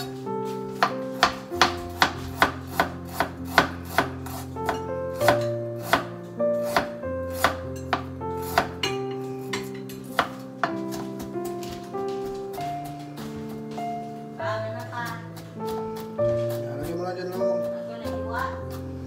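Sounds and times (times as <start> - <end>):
background music with held notes: 0.0 - 19.0
knife chopping on plastic board: 0.8 - 8.9, 10.2 - 11.7.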